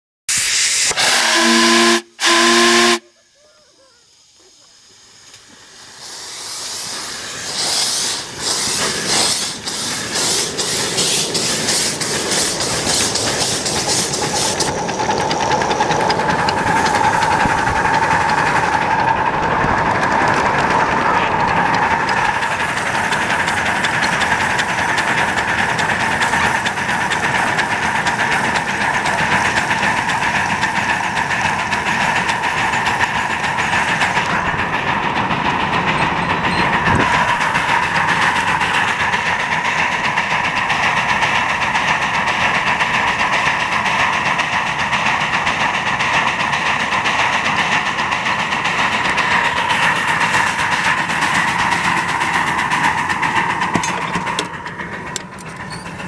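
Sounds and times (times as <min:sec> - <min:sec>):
steam whistle blasts: 0:00.3 - 0:03.3
locomotive exhaust chuffs: 0:00.3 - 0:56.0
steam hissing: 0:00.3 - 0:56.0.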